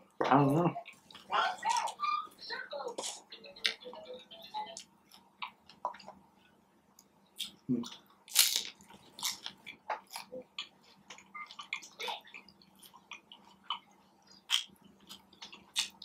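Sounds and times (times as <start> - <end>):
chewing with crackles: 0.7 - 16.0
crunchy bite: 8.3 - 10.3, 14.5 - 16.0.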